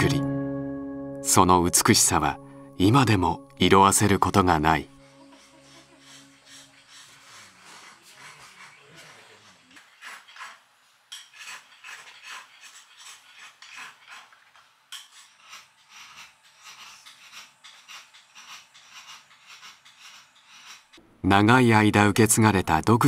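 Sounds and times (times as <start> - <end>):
ink stick scraping on inkstone: 5.1 - 21.0.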